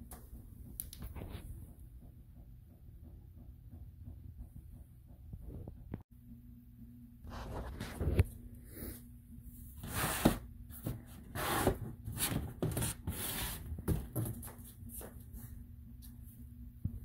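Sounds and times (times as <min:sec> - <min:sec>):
plastic parts and cardboard handled: 0:09.8 - 0:15.3.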